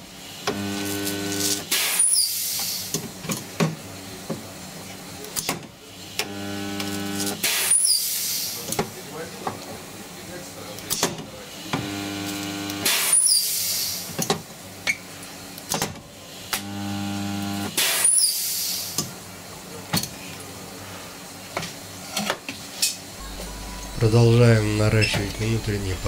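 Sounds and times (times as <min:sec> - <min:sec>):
welder electrical hum: 0:00.0 - 0:01.7, 0:06.2 - 0:07.5, 0:11.7 - 0:13.0, 0:16.5 - 0:17.8, 0:23.2 - 0:26.0
welding arc crackle and hiss: 0:00.2 - 0:03.3, 0:06.0 - 0:08.7, 0:11.5 - 0:14.3, 0:14.9 - 0:19.1.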